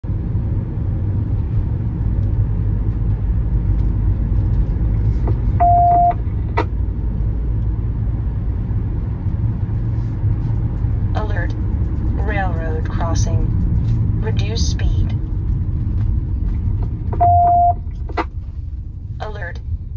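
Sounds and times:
car driving rumble inside cabin: 0:00.0 - 0:19.9
electronic beep: 0:05.6 - 0:06.2, 0:17.2 - 0:17.8.

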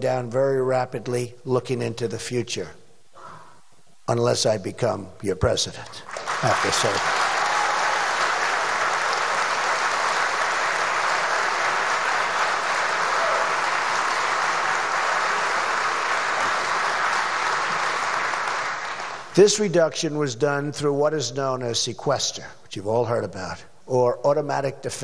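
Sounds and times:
audience applauding: 0:06.1 - 0:19.3.

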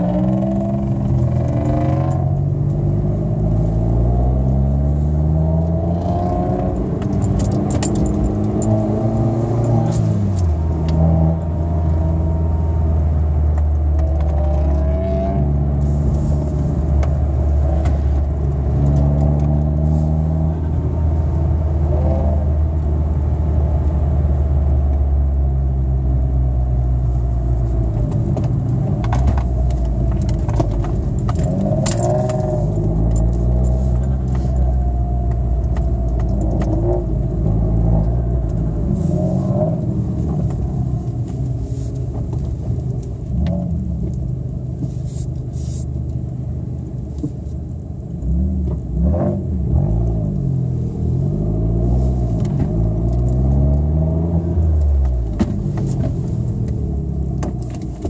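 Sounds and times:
car engine humming: 0:00.0 - 0:58.0
jingling and rattling: 0:07.1 - 0:08.8.

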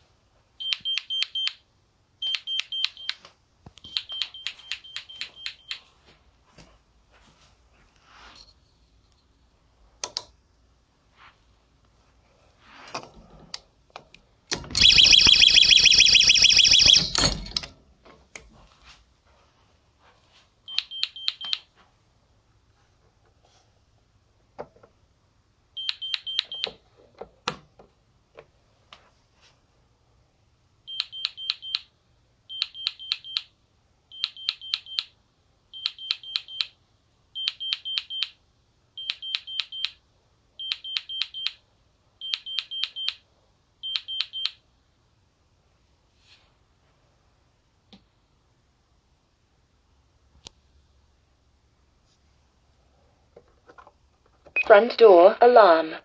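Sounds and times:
loud harsh alarm burst: 0:14.8 - 0:17.2
quick high alarm beeps: 0:14.8 - 0:17.2.

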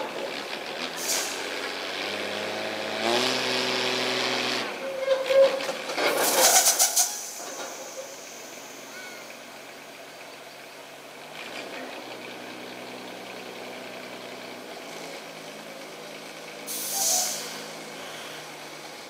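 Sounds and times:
diesel truck engine running: 0:00.0 - 0:04.9, 0:05.6 - 0:19.0
air brakes hissing: 0:01.0 - 0:01.5, 0:06.1 - 0:09.3, 0:16.6 - 0:18.6.

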